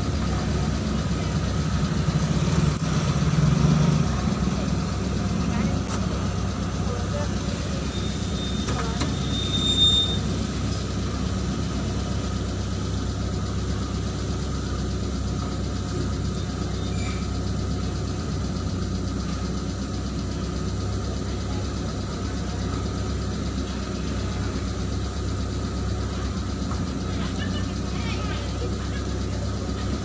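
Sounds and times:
truck engine idling: 0.0 - 30.0.

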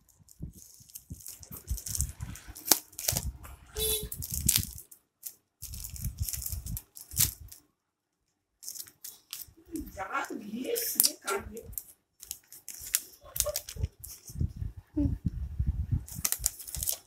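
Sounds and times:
packing tape tearing off box: 0.6 - 3.3, 16.1 - 17.0
cardboard box crinkling: 16.2 - 17.0.

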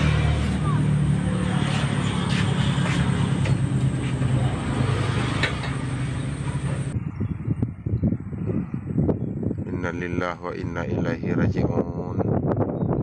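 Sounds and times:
low engine hum: 0.0 - 10.2.

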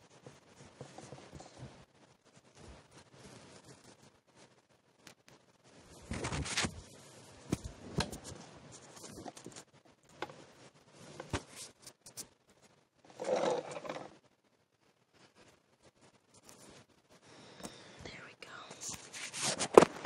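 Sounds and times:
clothing rustling near microphone: 0.0 - 4.6, 5.6 - 9.7, 18.7 - 20.0.

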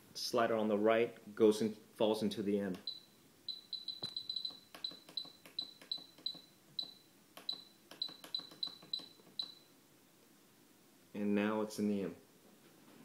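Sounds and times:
short high beeps: 2.8 - 9.6.

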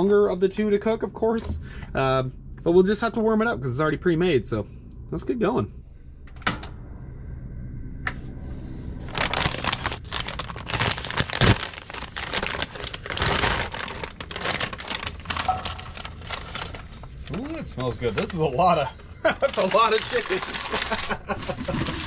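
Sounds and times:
plastic bag crinkling: 9.0 - 18.4, 19.4 - 22.0.

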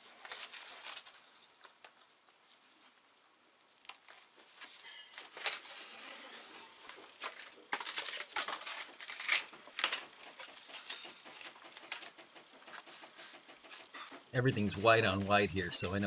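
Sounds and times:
sailcloth and paper crinkling: 0.0 - 12.1.

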